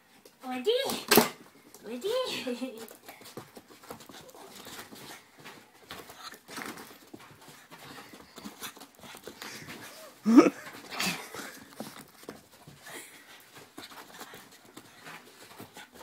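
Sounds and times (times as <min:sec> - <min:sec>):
dog scuffling: 0:00.2 - 0:16.0
dog breathing hard: 0:02.9 - 0:16.0.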